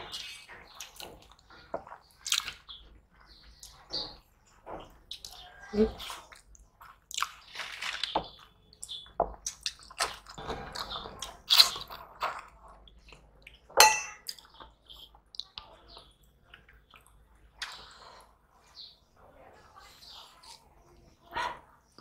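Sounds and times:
chewing and mouth smacking: 0:00.0 - 0:03.9, 0:05.1 - 0:18.3
hand knocking a steel plate: 0:13.8 - 0:14.2.

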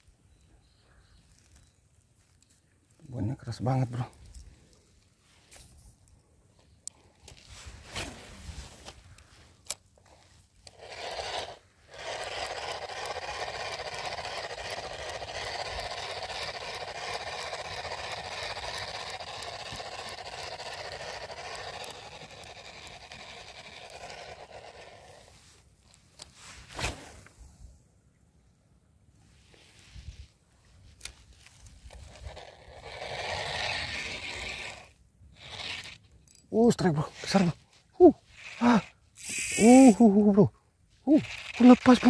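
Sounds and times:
sharp clicks: 0:10.6 - 0:24.9
fishing reel whirring: 0:10.6 - 0:25.3, 0:31.8 - 0:36.4, 0:38.3 - 0:40.1, 0:41.1 - 0:42.0.

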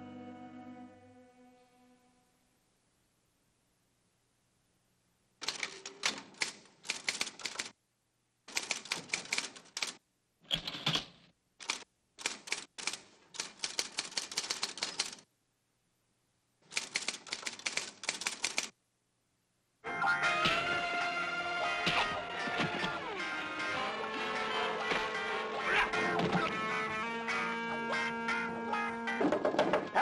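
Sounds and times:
typewriter keys typing: 0:05.4 - 0:07.8, 0:08.5 - 0:10.0, 0:10.6 - 0:15.2, 0:16.7 - 0:18.7.

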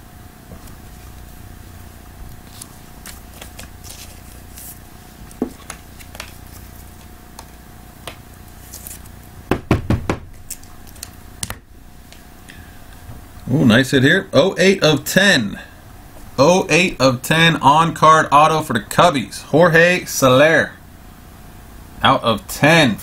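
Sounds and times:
cards handled on tabletop: 0:02.4 - 0:09.1
sharp knocks: 0:09.5 - 0:10.3.

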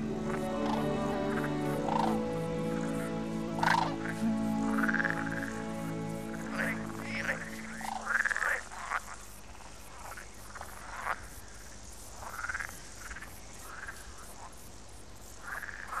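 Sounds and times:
waterfowl calling: 0:00.0 - 0:08.6.

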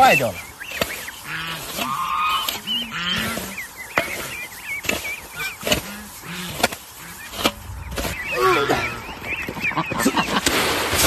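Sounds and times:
low waterfowl calls: 0:00.0 - 0:10.4
birds chirping: 0:00.0 - 0:11.0
metal shovel scraping dirt: 0:00.0 - 0:11.0.

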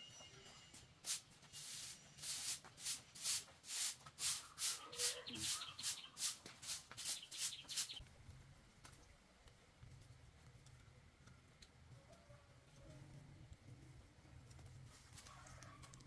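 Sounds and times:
broom sweeping hard floor: 0:01.0 - 0:08.0.

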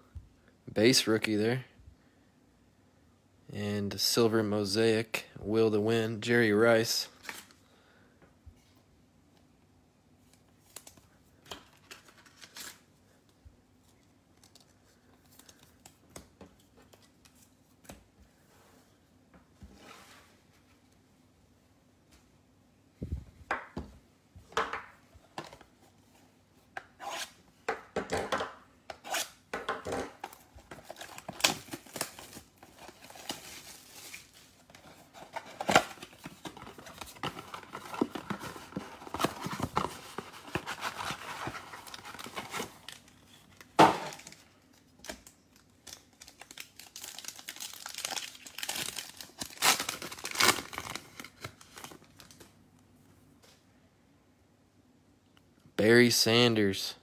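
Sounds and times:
foil packs crinkling and tearing: 0:30.4 - 0:52.4.

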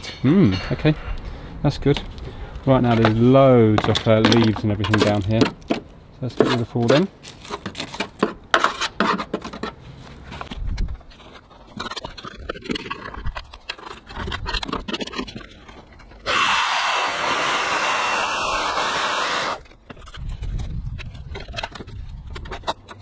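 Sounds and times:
dry leaves scraped and rustled: 0:06.6 - 0:08.0
loud rushing hiss: 0:16.3 - 0:19.6.

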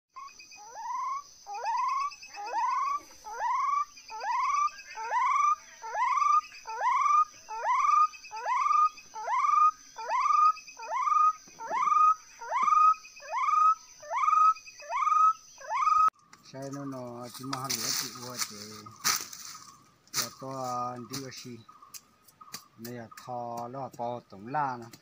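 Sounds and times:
high insect trill: 0:00.2 - 0:25.0
animal whooping calls: 0:00.6 - 0:16.1.

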